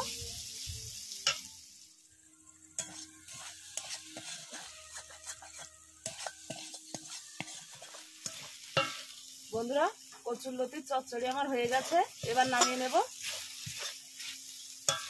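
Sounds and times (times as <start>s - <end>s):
light sizzle: 0.0s - 15.0s
metal spatula scraping a pan: 1.2s - 1.5s, 2.6s - 10.3s, 11.2s - 15.0s.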